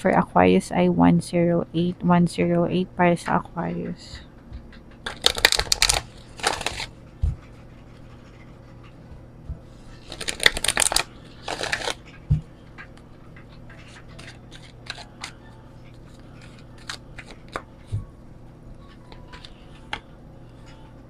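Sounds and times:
cards being shuffled: 0:05.0 - 0:07.0, 0:10.0 - 0:12.0, 0:13.5 - 0:18.0.

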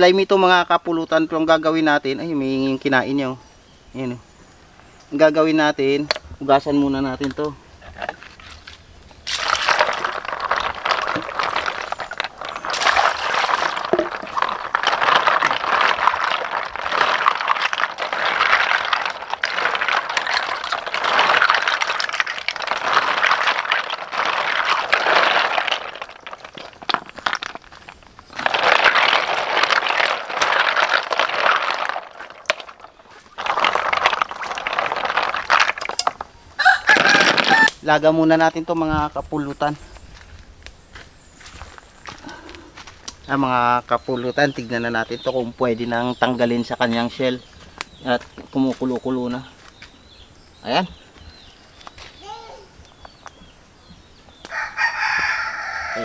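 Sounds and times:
snail shells clattering together: 0:07.2 - 0:37.8
water sloshing: 0:07.8 - 0:37.6.

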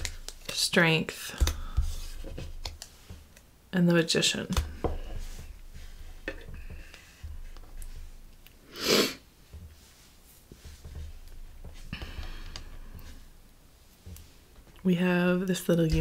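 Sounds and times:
sharp sniff through the nose: 0:08.7 - 0:09.2.

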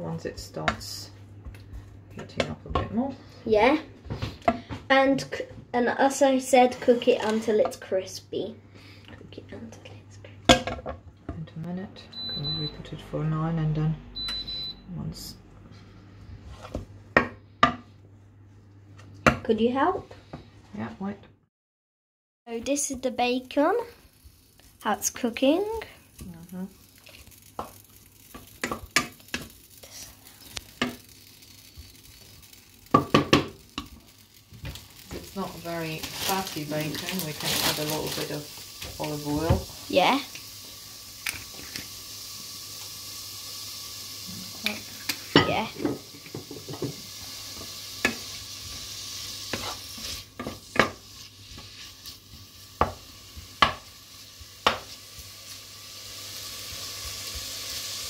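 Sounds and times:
bacon sizzling in a pot: 0:02.7 - 0:09.0, 0:22.5 - 0:58.0
utensil scraping a pan: 0:49.4 - 0:52.2.

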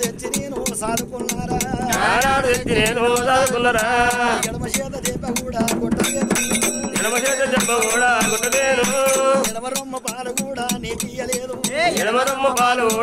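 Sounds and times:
men singing folk ballad: 0:00.0 - 0:13.0
brass hand cymbals: 0:06.0 - 0:09.6.

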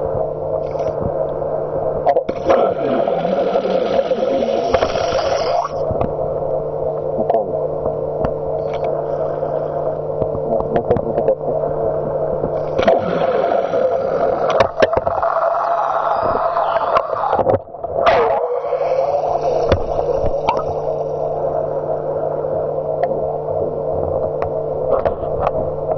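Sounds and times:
underwater electric motor hum: 0:00.0 - 0:25.9
water gurgling: 0:02.1 - 0:06.0, 0:08.5 - 0:23.5.

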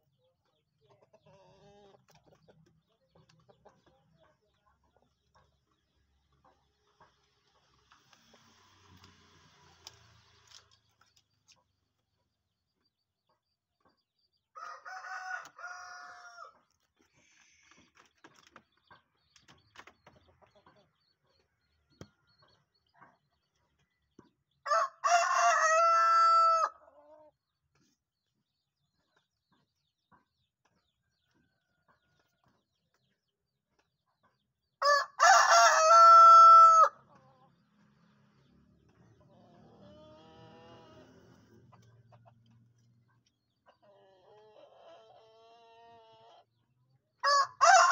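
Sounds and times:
rooster crowing: 0:14.6 - 0:16.5, 0:24.7 - 0:26.8, 0:34.8 - 0:37.0, 0:47.2 - 0:47.9.

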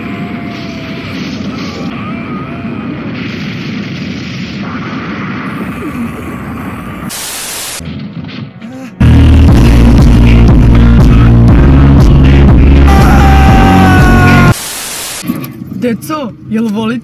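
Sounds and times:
burst of hiss: 0:07.1 - 0:07.8, 0:14.5 - 0:15.2
loud music: 0:09.0 - 0:14.6.

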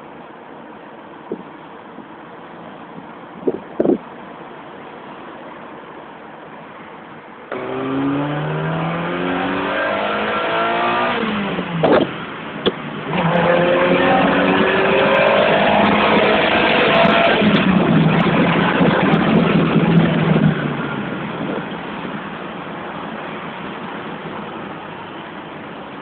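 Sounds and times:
wind and road noise: 0:00.0 - 0:26.0
car engine accelerating: 0:07.5 - 0:21.9.

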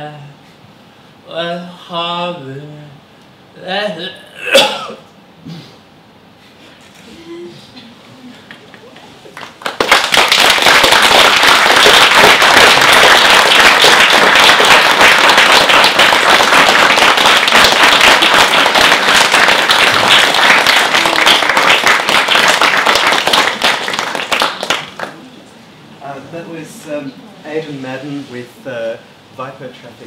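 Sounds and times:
audience applauding: 0:08.5 - 0:25.3.

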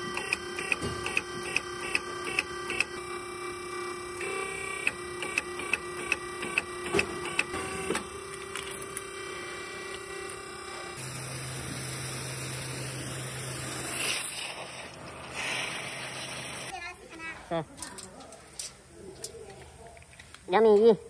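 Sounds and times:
motor and pump hum: 0:00.0 - 0:16.7
sharp machine clicks: 0:00.1 - 0:03.0, 0:04.2 - 0:07.9.

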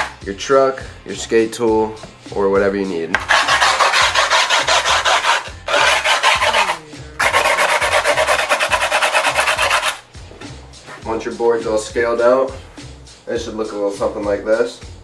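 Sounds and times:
screwdriver rasping on grip tape: 0:03.2 - 0:10.0.

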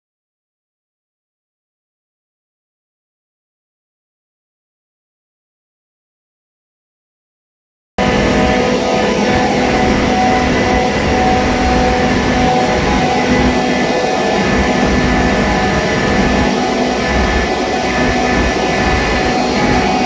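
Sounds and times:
screw compressor droning: 0:08.0 - 0:20.0.

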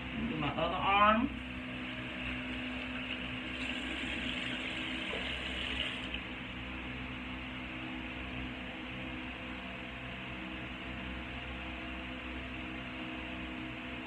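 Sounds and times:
background hiss and hum: 0:00.0 - 0:14.0
tap water running into sink: 0:02.5 - 0:06.2.

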